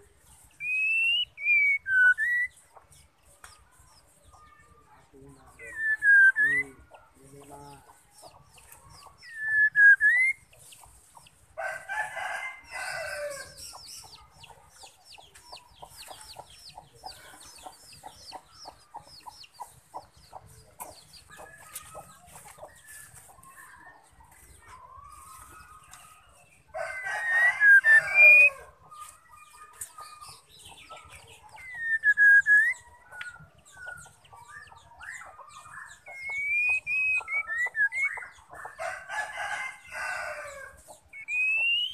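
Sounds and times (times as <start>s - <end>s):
bird whistling and chattering: 0.6s - 2.6s, 5.6s - 6.8s, 9.2s - 10.6s, 27.2s - 28.5s, 31.6s - 35.3s, 35.9s - 38.4s, 41.1s - 41.9s
rooster crowing: 11.6s - 13.6s, 26.7s - 28.7s, 38.8s - 40.8s.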